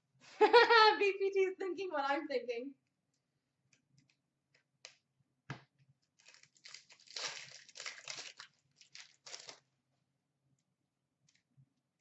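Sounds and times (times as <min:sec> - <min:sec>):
foil wrapper crackling and tearing: 0:06.2 - 0:09.7.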